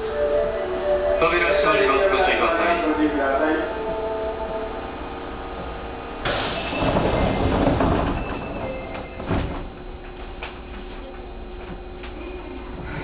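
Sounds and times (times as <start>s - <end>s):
subway car doors sliding shut: 3.8s - 10.6s
doors closing knock: 6.3s - 10.1s.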